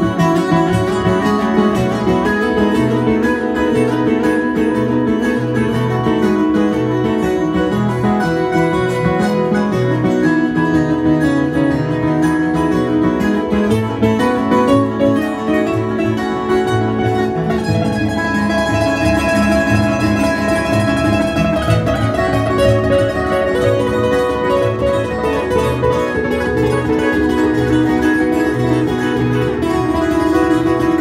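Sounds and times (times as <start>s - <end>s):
acoustic guitar duet: 0.0s - 31.0s.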